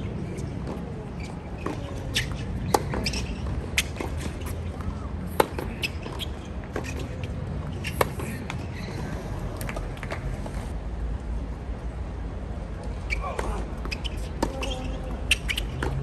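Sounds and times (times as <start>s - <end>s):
tennis ball bouncing: 0.6s - 8.6s, 13.4s - 16.0s
rackets striking tennis ball: 1.6s - 8.6s.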